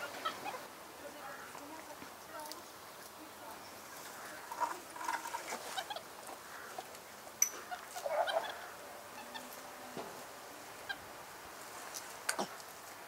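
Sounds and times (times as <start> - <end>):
honk-like animal call: 7.6 - 9.6.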